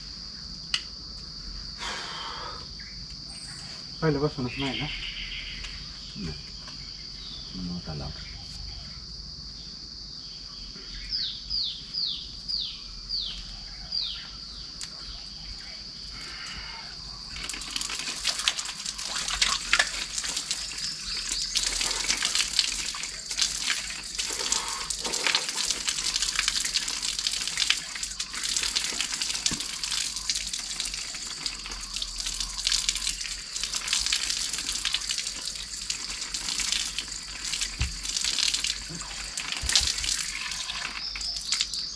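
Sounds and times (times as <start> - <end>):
insect buzz: 0.0 - 41.9
water splashing onto stone: 17.3 - 41.9.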